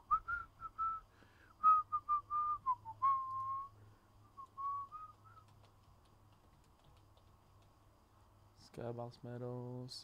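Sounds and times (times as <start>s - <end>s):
person whistling a tune: 0.1s - 3.8s, 4.4s - 5.5s.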